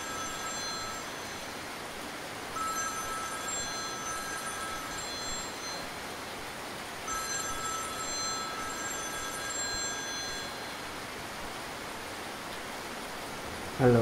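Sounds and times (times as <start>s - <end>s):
mobile phone ringtone: 0.0s - 1.6s, 2.6s - 6.0s, 7.1s - 10.8s.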